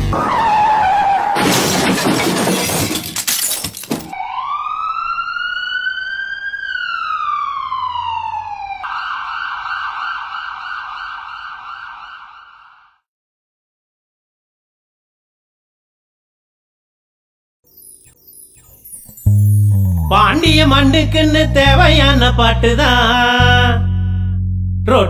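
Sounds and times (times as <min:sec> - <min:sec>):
siren wailing: 0:00.1 - 0:01.5, 0:04.1 - 0:13.0
falling screech: 0:00.2 - 0:01.9
crashing and shattering glass: 0:01.4 - 0:04.1
rough steady siren tone: 0:04.1 - 0:13.0.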